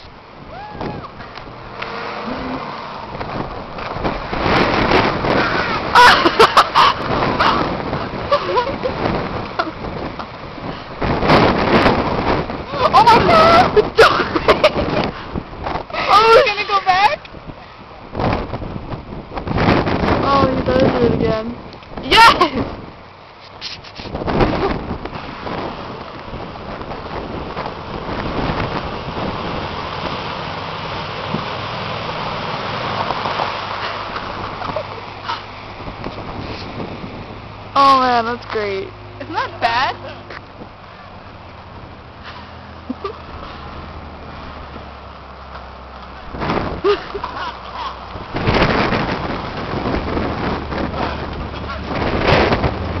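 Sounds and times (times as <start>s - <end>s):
truck tyres spraying water: 0.0s - 53.0s.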